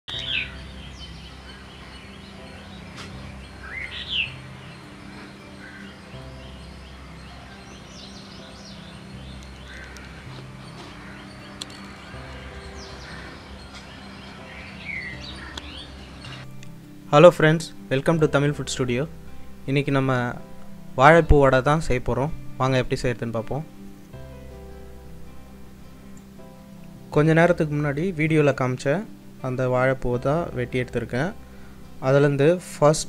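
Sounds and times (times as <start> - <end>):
small birds chirping: 0.1 - 16.9
soft background music: 0.1 - 33.0.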